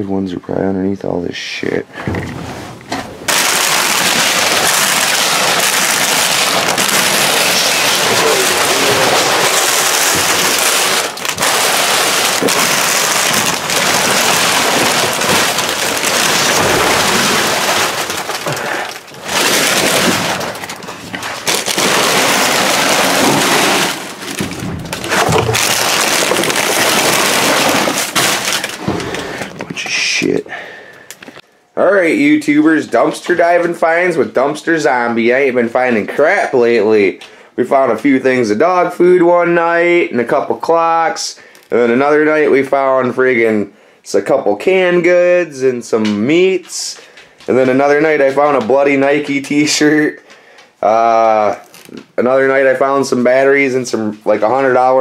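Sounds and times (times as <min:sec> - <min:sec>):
plastic snack bags crackling: 0:03.2 - 0:31.4, 0:46.3 - 0:52.8.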